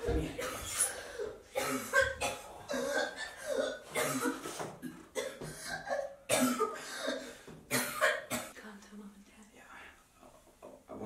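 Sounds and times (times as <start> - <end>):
woman coughing and retching: 0.1 - 8.6.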